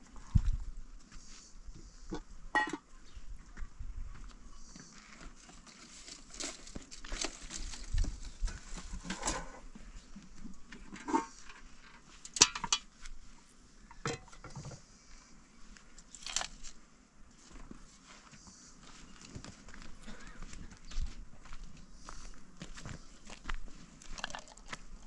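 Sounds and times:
rustling of household things: 5.4 - 10.0.

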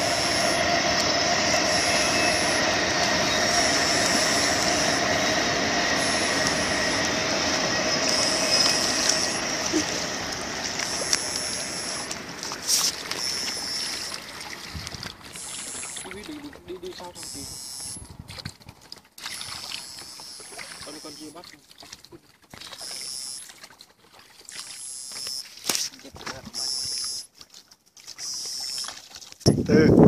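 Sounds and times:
high tone switching on and off: 0.0 - 14.5, 15.2 - 16.3, 17.2 - 18.0
inverter electric whine: 0.0 - 14.6, 15.2 - 16.3.

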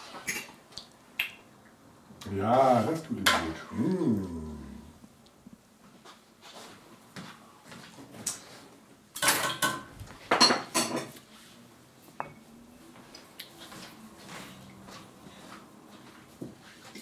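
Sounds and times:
dishes clattering: 9.2 - 11.2.

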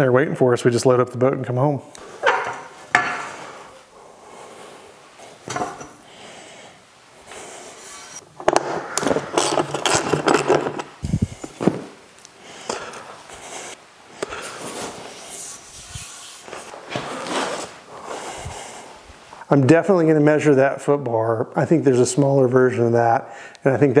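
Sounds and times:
metal bars knocking and scraping: 8.1 - 11.0.

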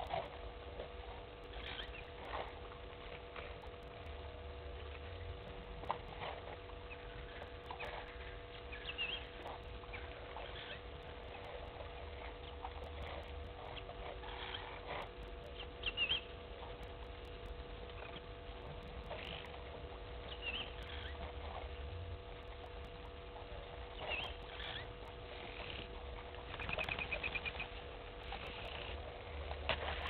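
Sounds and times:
faint steady hum: 0.0 - 30.0.

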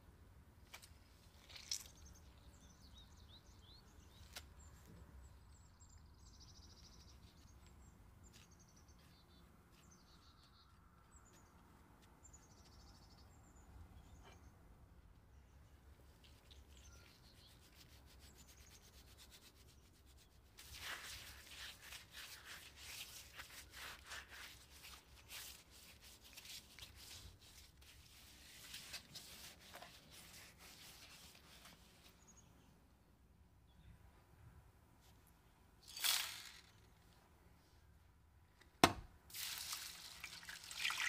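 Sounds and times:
gloved hands rubbing meat: 16.2 - 32.1.

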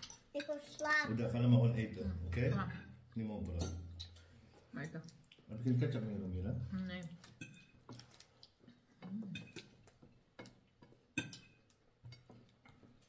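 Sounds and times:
cutlery clinking against plates: 0.0 - 0.8, 3.4 - 5.0, 7.2 - 8.3, 9.3 - 13.0.

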